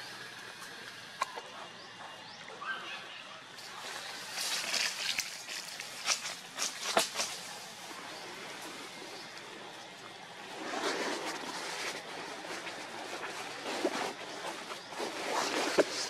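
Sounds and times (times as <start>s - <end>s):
steady outdoor hiss: 0.0s - 16.0s
dry leaves crunching: 3.6s - 16.0s.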